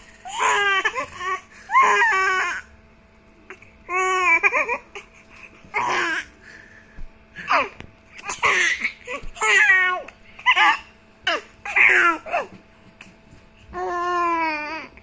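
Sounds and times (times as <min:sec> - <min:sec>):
baby laughing: 0:07.4 - 0:12.5.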